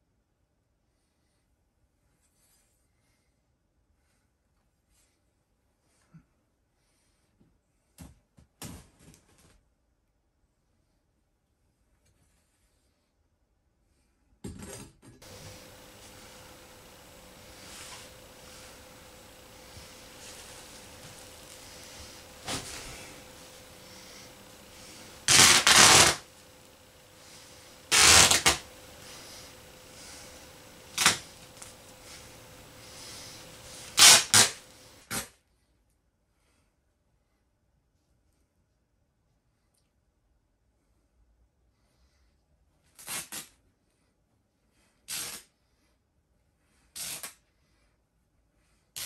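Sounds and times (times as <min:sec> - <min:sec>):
fabric seams ripping: 0:15.2 - 0:35.2.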